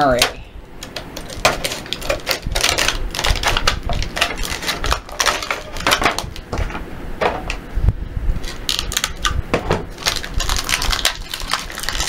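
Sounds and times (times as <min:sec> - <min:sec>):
scissors cutting stiff plastic: 0:00.8 - 0:06.3.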